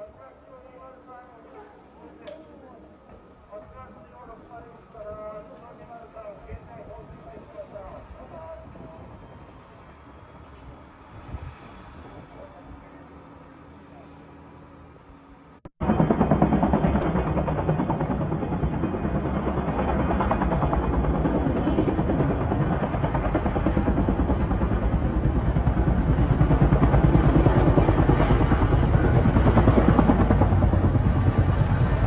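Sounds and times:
helicopter rotors chopping: 15.8 - 32.0.

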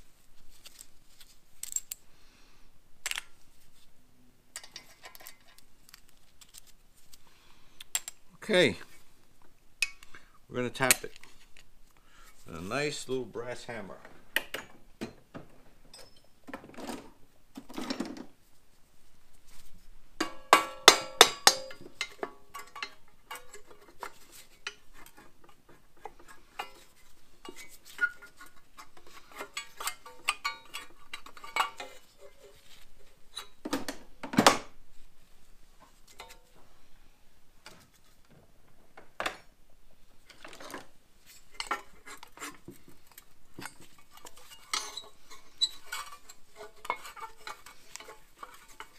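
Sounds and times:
tools clinking and knocking: 4.5 - 6.0, 7.9 - 8.3, 10.8 - 11.4, 14.0 - 18.3, 20.2 - 32.6, 40.3 - 48.9.

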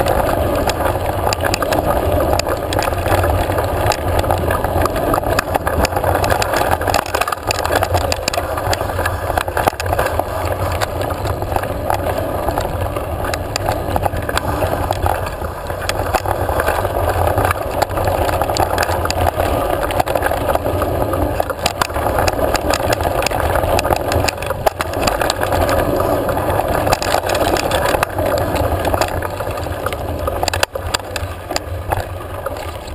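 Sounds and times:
bike clicks and rattles: 0.0 - 32.9
tyres rumbling on dirt: 0.0 - 32.9
wind on microphone: 0.0 - 32.9.

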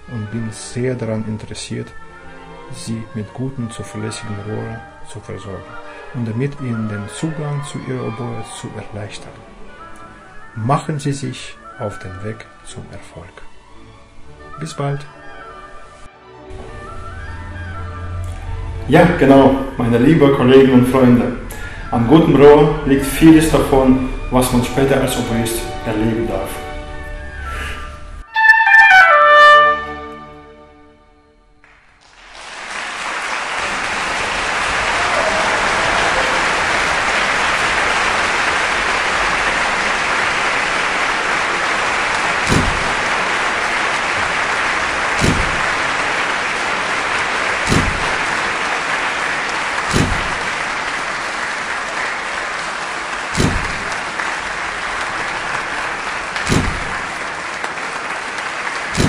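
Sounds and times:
oboe note: 16.5 - 30.8
audience applauding: 31.6 - 59.0
dull thump: 42.5 - 43.0, 45.2 - 45.8, 47.7 - 48.2, 49.9 - 50.4, 53.4 - 53.9, 56.5 - 56.9.

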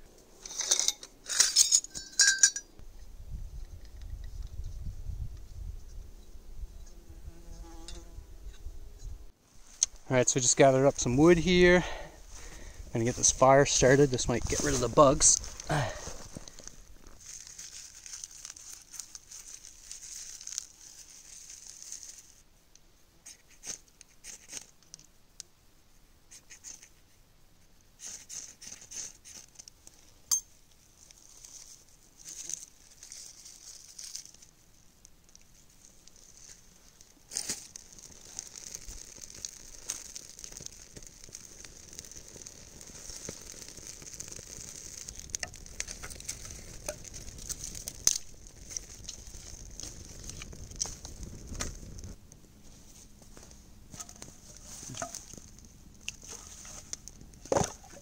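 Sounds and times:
wood fire crackling: 9.4 - 22.4, 28.0 - 58.0
twigs crumpled and snapped by hand: 15.3 - 22.4, 30.6 - 52.2, 53.4 - 58.0.

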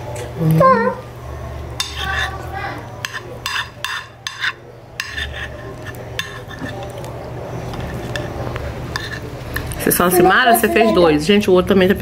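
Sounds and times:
spoons clinking against plates: 1.8 - 2.4, 3.0 - 10.0.

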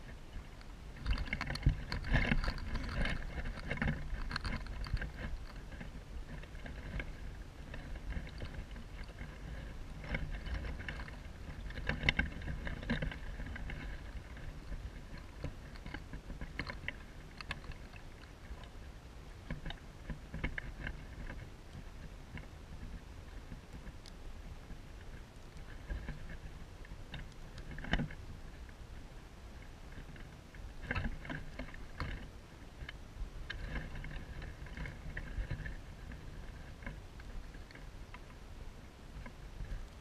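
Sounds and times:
dry grass and twigs rustling: 0.0 - 19.7
low wind rumble on microphone: 0.0 - 40.0.

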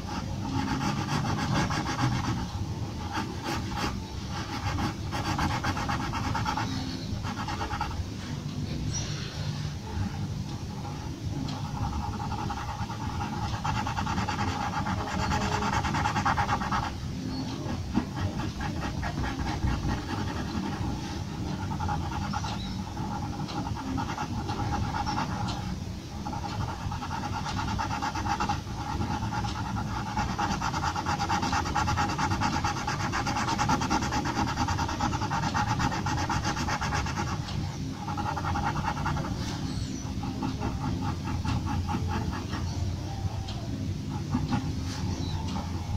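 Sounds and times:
pencil scratching on paper: 0.0 - 8.3, 10.8 - 42.9, 44.1 - 45.9.

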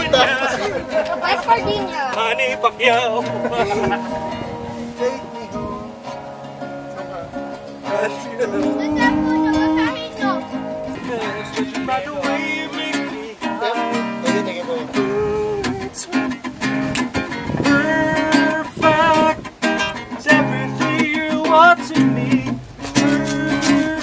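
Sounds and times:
acoustic guitar strumming chords: 0.0 - 24.0
person singing: 8.4 - 10.6, 11.2 - 16.4, 17.6 - 24.0.

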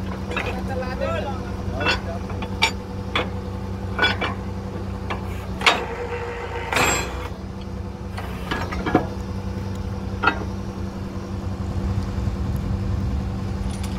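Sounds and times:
metal clanks of drill pipe: 0.0 - 1.1, 1.7 - 9.2, 10.2 - 10.7
drilling rig engine running: 0.0 - 13.9.

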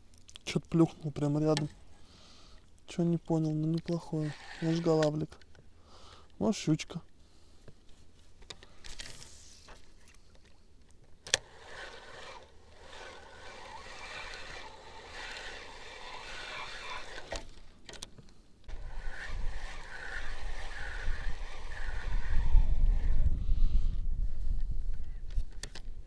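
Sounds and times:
reel clicks: 2.5 - 6.4, 8.4 - 23.0
fishing reel cranking: 3.5 - 5.4, 11.2 - 17.7, 18.7 - 23.2
wind buffeting microphone: 18.7 - 26.0.

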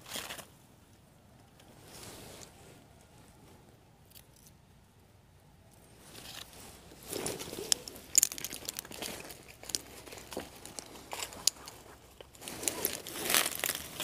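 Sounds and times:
dry leaves rustling and crunching: 6.1 - 11.7, 12.3 - 14.0
sharp crackles: 6.4 - 14.0.

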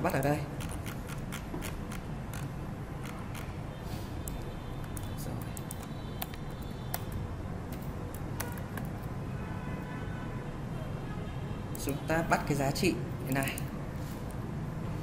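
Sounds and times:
keyboard typing: 0.2 - 3.6, 4.2 - 7.2.

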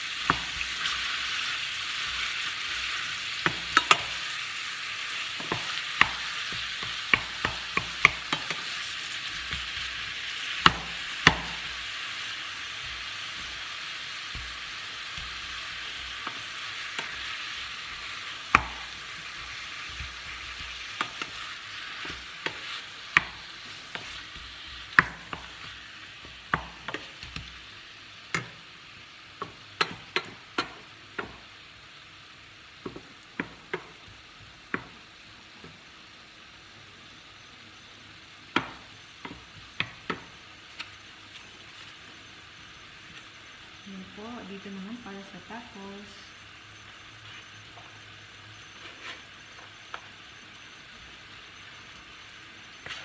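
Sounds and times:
meat sizzling in a pan: 0.0 - 53.0
spoon knocking against pan: 5.4 - 8.7, 10.6 - 11.8, 18.4 - 21.4.

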